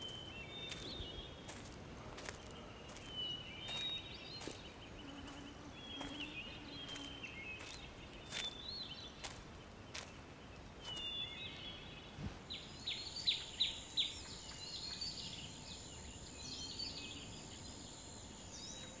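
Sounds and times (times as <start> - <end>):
footsteps crunching on leafy trail: 0.0 - 12.0
small birds chirping: 0.0 - 19.0.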